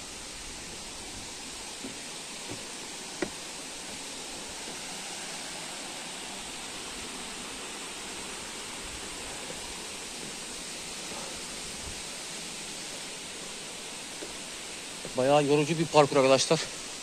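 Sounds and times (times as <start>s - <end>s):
stream rushing over rocks: 0.0s - 17.0s.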